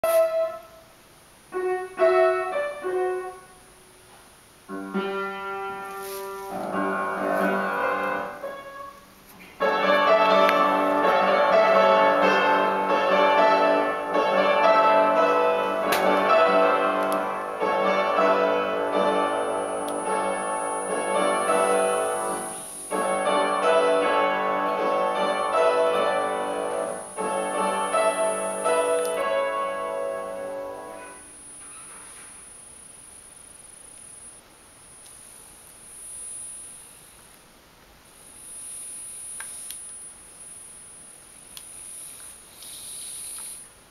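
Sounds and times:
piano music: 1.5 - 3.7, 4.7 - 9.0, 9.6 - 31.4.

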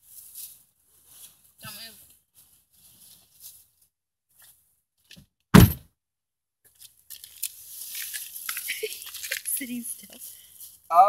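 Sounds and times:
car door shutting: 5.6 - 5.8.

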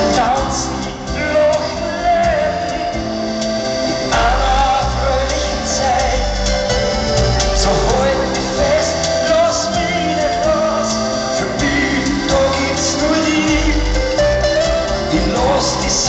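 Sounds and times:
accordion: 0.0 - 16.0
acoustic guitars: 0.0 - 16.0
person singing: 0.0 - 16.0.

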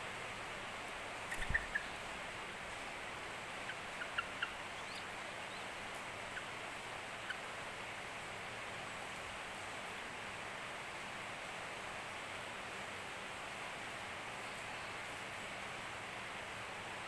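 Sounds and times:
steady hiss: 0.0 - 17.0
bird chirping: 1.3 - 2.1, 3.6 - 6.5.

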